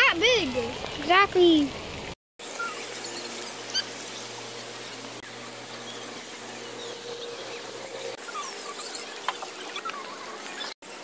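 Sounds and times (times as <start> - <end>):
outdoor hiss: 0.0 - 11.0
birds chirping: 2.4 - 11.0.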